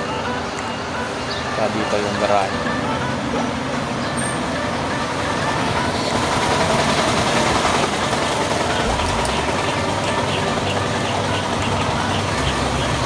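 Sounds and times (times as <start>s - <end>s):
vehicle engine driving past: 8.6s - 13.0s.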